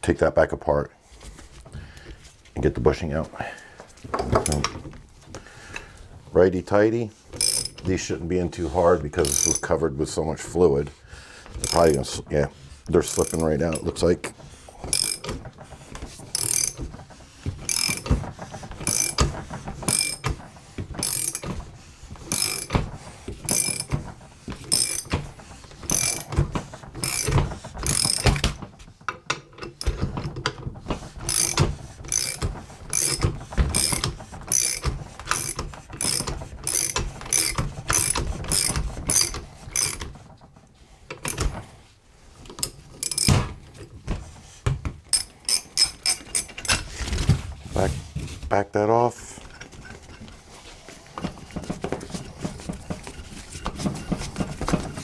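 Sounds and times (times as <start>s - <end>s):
ratchet wrench clicking: 7.4s - 7.8s, 9.2s - 9.6s, 11.6s - 12.0s, 13.1s - 13.5s, 14.9s - 15.4s, 16.3s - 16.8s, 17.7s - 18.1s, 18.8s - 19.3s, 19.9s - 20.2s, 21.0s - 21.4s, 22.3s - 22.8s, 23.5s - 23.9s, 24.7s - 25.2s, 25.9s - 26.3s, 27.0s - 28.5s, 31.3s - 40.1s.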